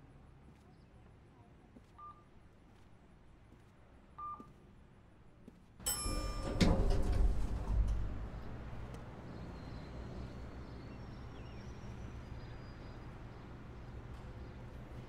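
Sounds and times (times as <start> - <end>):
elevator arrival chime: 5.8 - 8.8
elevator rumble: 5.8 - 15.0
sliding doors opening: 5.9 - 9.5.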